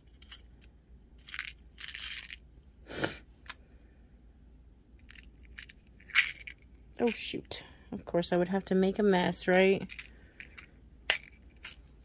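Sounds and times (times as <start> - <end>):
glass beads rattling into a box: 1.2 - 2.4, 5.1 - 7.2, 9.9 - 11.8.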